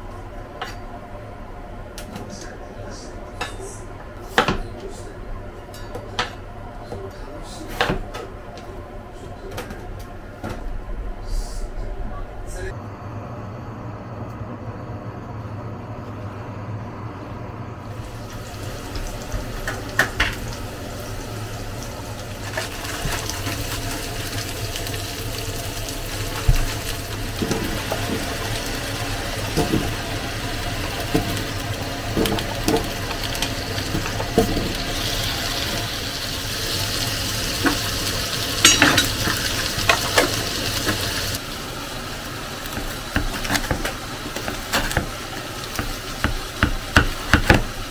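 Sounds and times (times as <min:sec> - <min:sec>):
food sizzling in a frying pan: 0:17.9 - 0:47.9
utensil clinking against pan: 0:38.6 - 0:39.3.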